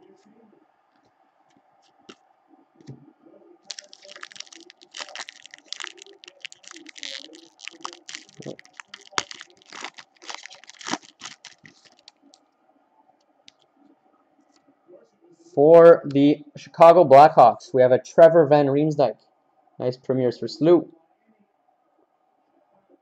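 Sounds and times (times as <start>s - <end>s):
wrapper tearing and crinkling: 3.7s - 12.4s.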